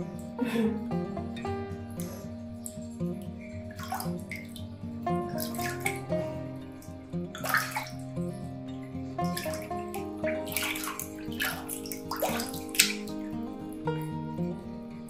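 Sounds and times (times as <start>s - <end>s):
background music with held notes: 0.0s - 15.0s
water splashing in a plastic basin: 5.4s - 6.1s, 7.4s - 8.0s, 9.2s - 13.2s.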